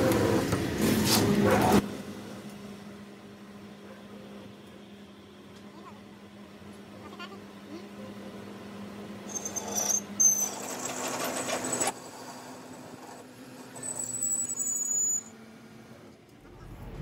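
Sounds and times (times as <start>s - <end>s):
metal scraping with high squeal: 9.3s - 15.3s.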